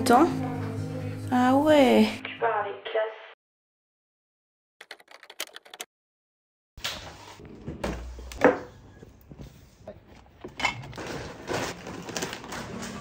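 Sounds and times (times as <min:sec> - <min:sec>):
bags rustling: 0:10.9 - 0:13.0
cardboard scraping: 0:11.0 - 0:13.0.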